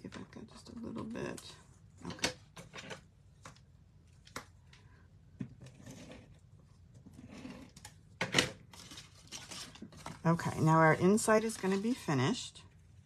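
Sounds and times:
paper rustling: 8.6s - 12.4s.

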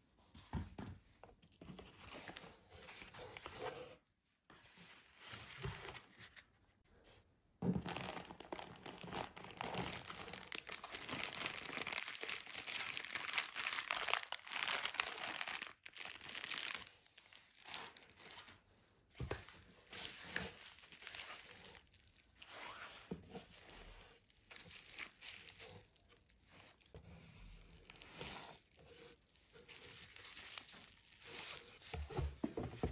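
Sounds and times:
plastic packaging crinkling: 7.7s - 18.6s, 19.9s - 22.4s, 23.4s - 26.9s, 27.6s - 32.3s.

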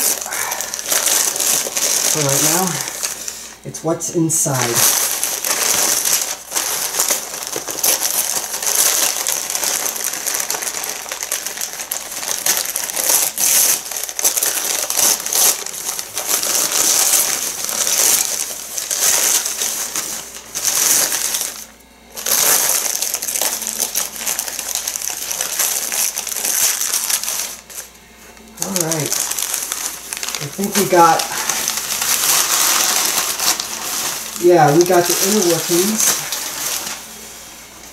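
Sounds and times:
newspaper rustling and crinkling: 0.0s - 37.9s.

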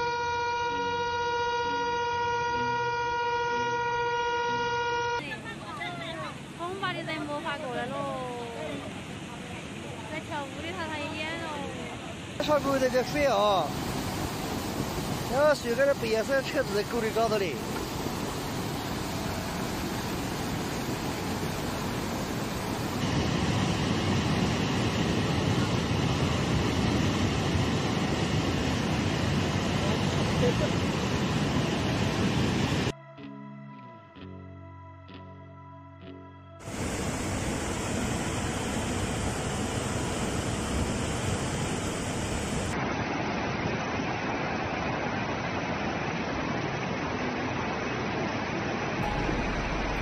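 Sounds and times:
floodwater rushing: 6.0s - 32.9s, 36.6s - 50.0s.

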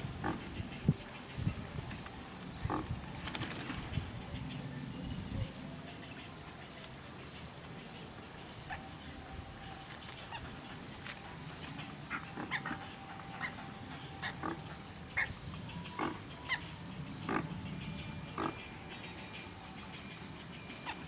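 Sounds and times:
pelican chick calling: 11.8s - 18.7s.

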